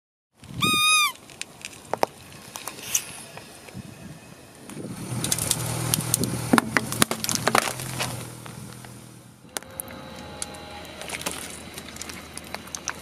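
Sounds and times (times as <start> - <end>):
grit crackling under rolling tyre: 0.4 - 13.0
low car hum: 0.4 - 13.0
rubber squeaky toy squeak: 0.6 - 1.2.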